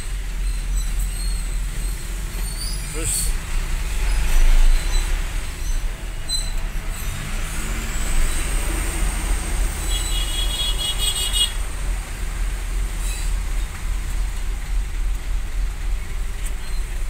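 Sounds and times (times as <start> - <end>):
vehicle engine low rumble: 0.0 - 17.0.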